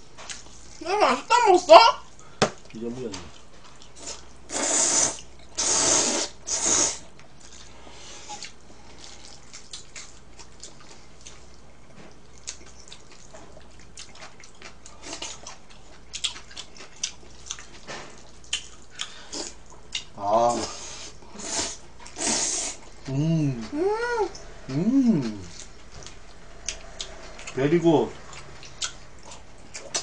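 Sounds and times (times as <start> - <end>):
chewing with smacks: 0.2 - 0.8, 2.1 - 4.4, 7.1 - 20.2, 28.2 - 30.0
wet noodle slurps: 4.0 - 7.6, 20.7 - 22.9.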